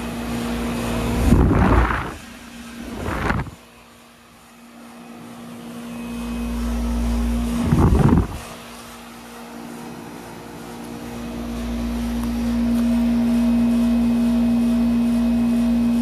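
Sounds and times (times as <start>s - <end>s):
compressor humming: 0.0s - 16.0s
wind noise on microphone: 1.0s - 2.2s, 2.8s - 3.6s, 7.5s - 8.5s.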